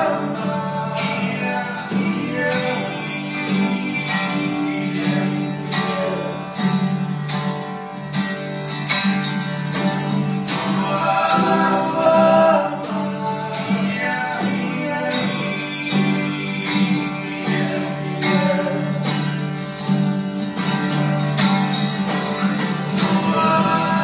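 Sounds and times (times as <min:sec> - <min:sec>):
man singing: 0:00.0 - 0:06.8, 0:10.4 - 0:19.5, 0:22.5 - 0:24.0
acoustic guitar strumming: 0:00.0 - 0:24.0.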